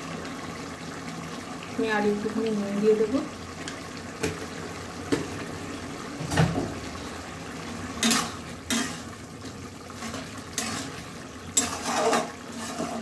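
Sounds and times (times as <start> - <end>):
metal spatula scraping pan: 8.0 - 9.2, 9.9 - 13.0.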